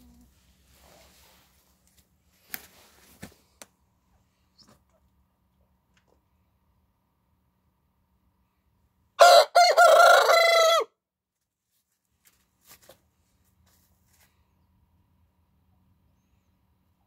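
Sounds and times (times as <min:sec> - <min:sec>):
rooster crowing: 0:09.2 - 0:10.9.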